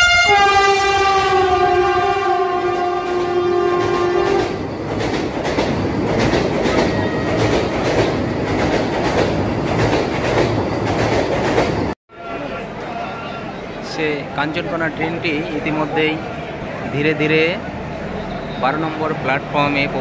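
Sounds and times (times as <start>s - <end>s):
train horn: 0.0s - 4.6s
train wheels rumbling: 0.0s - 20.0s.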